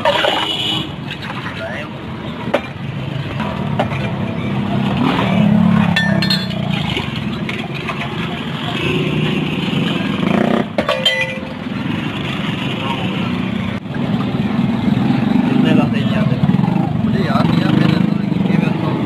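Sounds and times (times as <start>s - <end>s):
traffic: 0.0s - 19.0s
glass mugs clinking: 6.0s - 6.7s, 10.8s - 11.6s.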